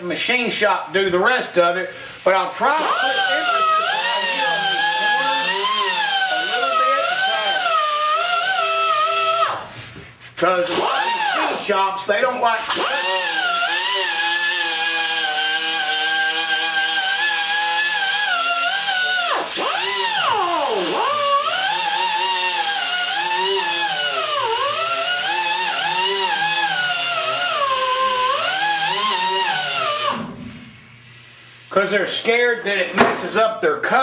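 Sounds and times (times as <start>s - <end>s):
angle grinder whining on metal: 2.6s - 9.7s, 10.6s - 11.7s, 12.7s - 30.7s.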